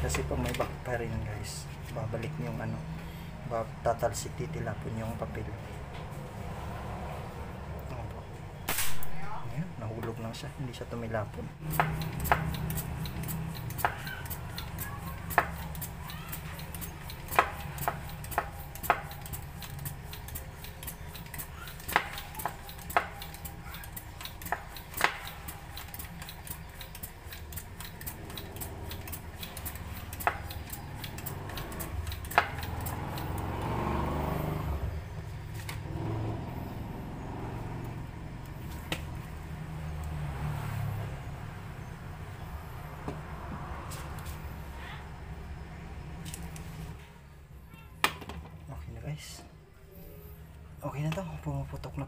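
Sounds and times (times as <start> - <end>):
passing engine: 0.0 - 47.7
foot pump metallic clicks: 11.6 - 33.6.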